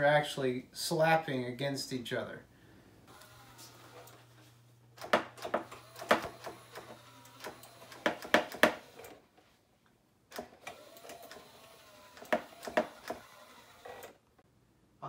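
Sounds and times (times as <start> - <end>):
faint motor whir: 3.0 - 9.6, 10.3 - 14.4.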